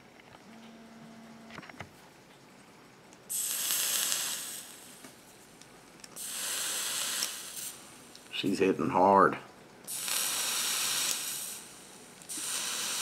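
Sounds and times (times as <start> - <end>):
atomizer coils hissing: 0.4 - 13.0.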